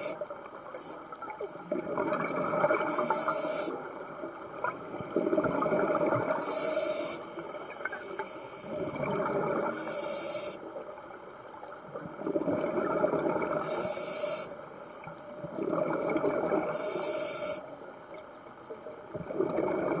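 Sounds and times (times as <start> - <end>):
exhaled air bubbling: 0.0 - 6.6, 7.8 - 9.8, 11.8 - 13.8, 15.1 - 16.8, 19.1 - 20.0
regulator hissing inhalations: 3.0 - 3.8, 6.4 - 8.9, 9.8 - 10.6, 13.6 - 14.5, 16.7 - 17.7.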